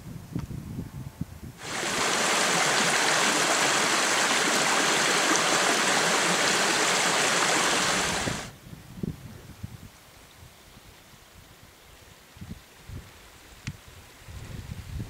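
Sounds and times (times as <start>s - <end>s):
water rushing over stones: 1.6s - 8.5s.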